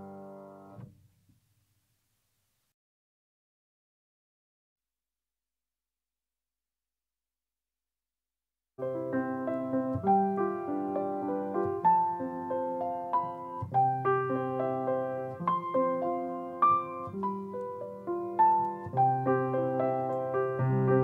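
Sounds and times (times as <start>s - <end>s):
slow solo piano piece: 0.0s - 0.9s, 8.8s - 21.0s.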